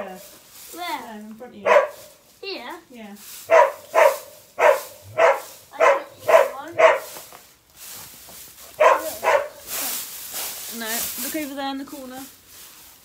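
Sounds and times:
dog barking: 1.6s - 2.1s, 3.5s - 7.2s, 8.8s - 9.7s.

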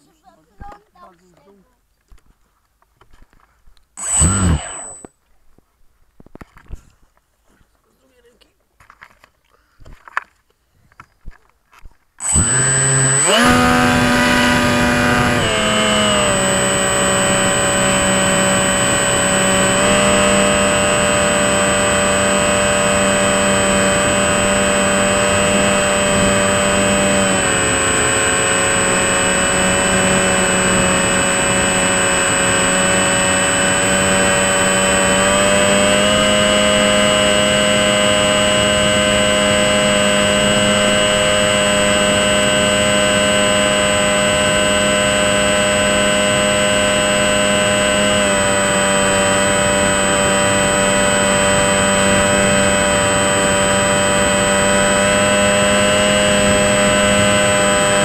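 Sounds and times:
model plane motor and propeller: 4.0s - 5.1s, 12.2s - 58.0s
thin high whine: 4.0s - 5.2s, 12.2s - 58.0s.

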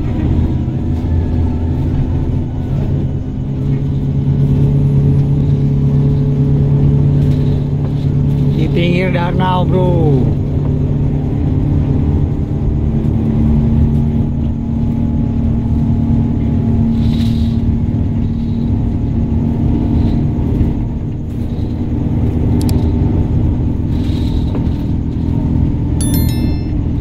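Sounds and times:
high electronic chime: 26.0s - 27.0s.

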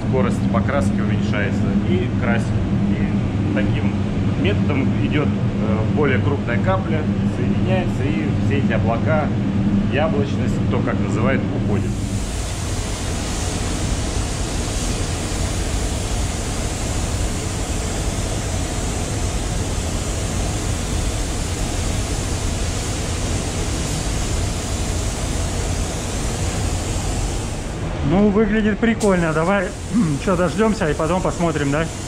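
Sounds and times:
steady low rumble: 0.0s - 32.0s
spray gun hissing: 11.9s - 27.8s, 29.0s - 32.0s.

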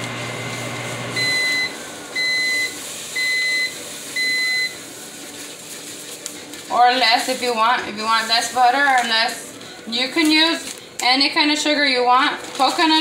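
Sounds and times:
microwave oven humming: 0.0s - 7.9s
microwave beeps: 1.0s - 4.9s.

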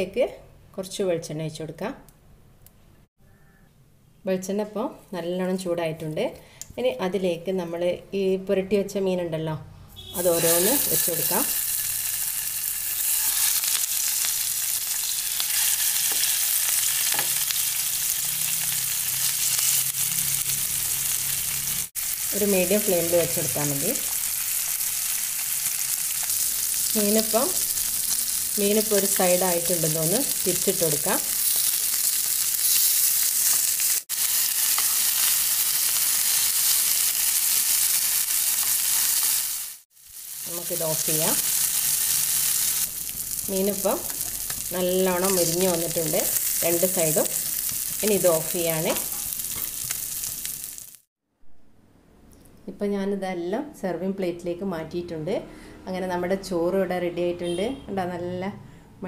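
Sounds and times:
spoon scraping a pan: 10.2s - 12.2s
fish sizzling in oil: 10.2s - 51.1s.

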